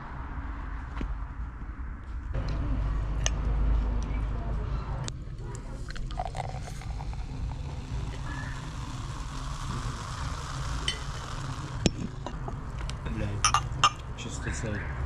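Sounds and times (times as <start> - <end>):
low rumble: 0.0 - 14.2
fizzy drink pouring into glass: 5.9 - 11.9.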